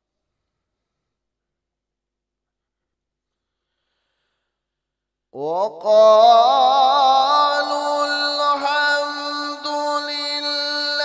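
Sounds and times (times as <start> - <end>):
man reciting melodically: 5.4 - 11.0.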